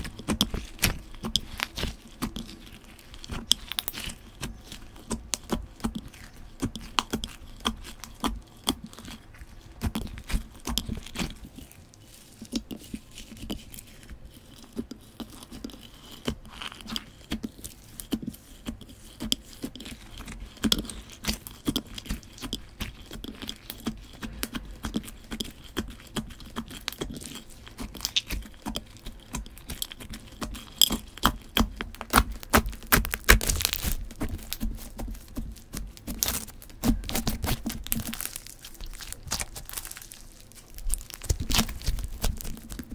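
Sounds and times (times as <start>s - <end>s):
crunchy slime crackling: 0.0s - 42.9s.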